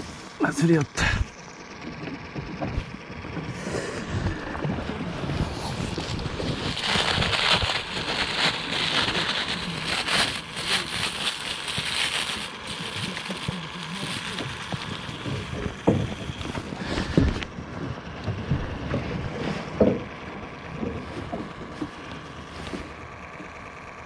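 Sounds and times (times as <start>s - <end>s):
wind buffeting microphone: 2.5s - 10.2s.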